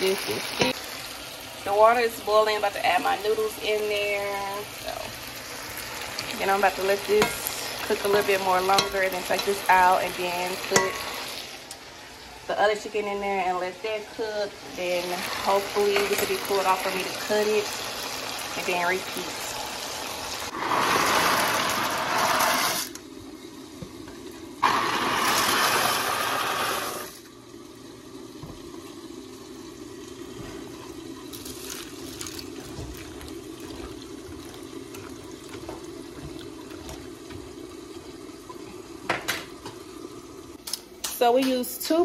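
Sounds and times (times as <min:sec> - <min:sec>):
water boiling and bubbling: 0:00.0 - 0:41.0
dry pasta pouring into pot: 0:24.6 - 0:27.2, 0:31.3 - 0:35.6.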